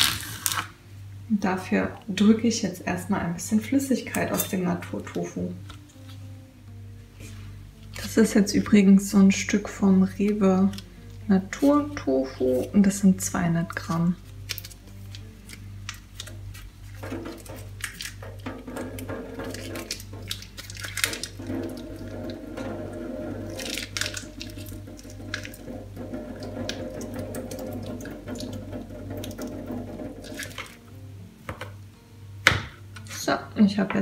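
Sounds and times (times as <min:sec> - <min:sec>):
plastic crinkling: 0:00.0 - 0:00.8, 0:10.6 - 0:11.9, 0:13.8 - 0:25.8
soft background music: 0:00.0 - 0:34.0
liquid dripping into steel sink: 0:17.0 - 0:30.8.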